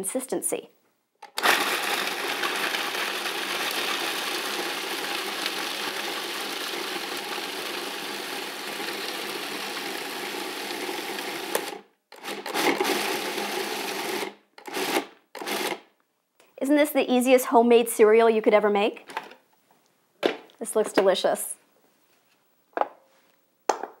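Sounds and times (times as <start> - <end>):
food processor grinding nuts: 1.2 - 15.8.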